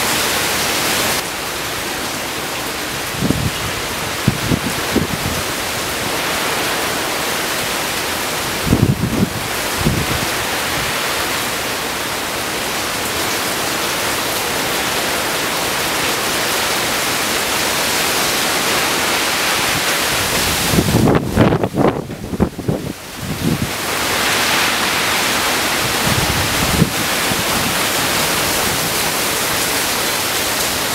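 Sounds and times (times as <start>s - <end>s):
heavy rain: 0.0s - 30.9s
wind gusts buffeting microphone: 3.2s - 6.8s, 8.4s - 11.2s, 18.8s - 29.9s.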